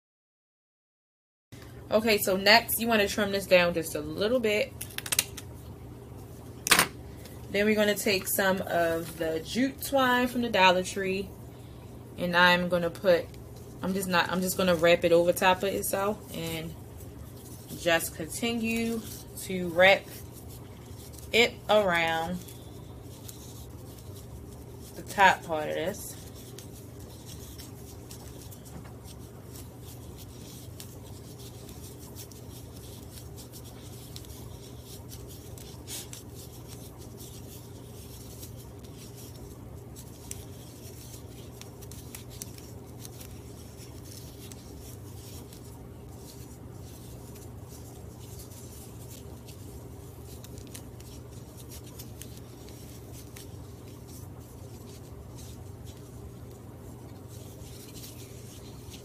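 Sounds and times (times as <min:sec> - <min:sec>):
steady low hum: 0:01.6 - 0:59.0
twine scratching and rubbing: 0:12.4 - 0:59.0.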